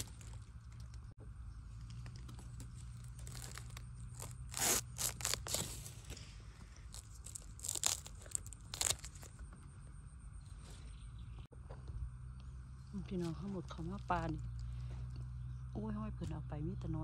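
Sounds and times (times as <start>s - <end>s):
knife crunching through bamboo: 0.0s - 1.0s, 2.0s - 9.3s.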